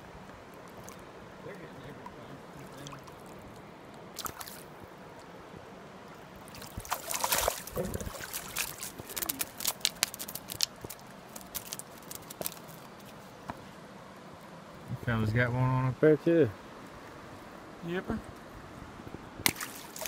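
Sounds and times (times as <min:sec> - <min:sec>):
running river water: 0:00.0 - 0:20.0
fish splashing and thrashing: 0:02.5 - 0:04.8, 0:06.4 - 0:13.2, 0:19.4 - 0:20.0.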